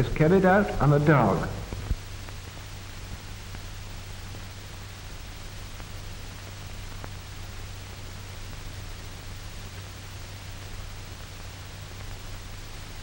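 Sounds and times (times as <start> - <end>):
low hum: 0.0 - 2.2
film soundtrack hiss: 0.0 - 13.0.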